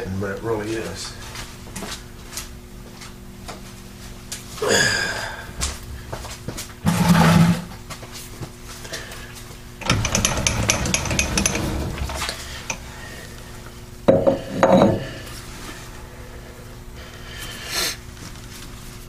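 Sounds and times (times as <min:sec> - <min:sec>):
scraping clatter: 0:06.9 - 0:07.8, 0:09.8 - 0:12.4
metal chuck clanking: 0:09.8 - 0:12.8.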